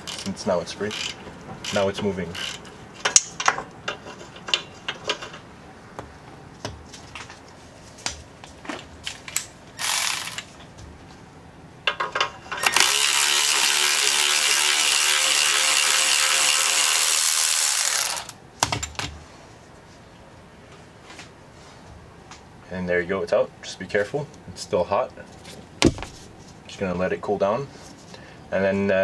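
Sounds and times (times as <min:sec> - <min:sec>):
ratchet wrench clicking: 0:00.0 - 0:02.7, 0:09.8 - 0:10.5.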